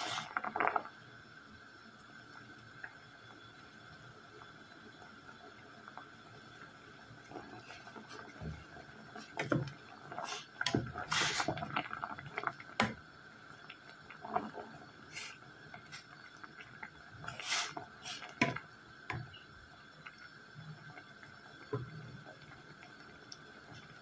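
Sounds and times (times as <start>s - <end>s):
water boiling and bubbling: 0.0s - 24.0s
wooden spoon stirring: 7.3s - 13.0s, 14.0s - 19.3s.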